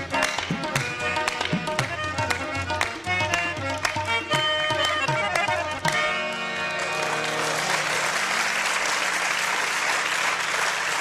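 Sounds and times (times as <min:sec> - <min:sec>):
harmonium chord: 0:00.0 - 0:11.0
audience applauding: 0:05.4 - 0:11.0.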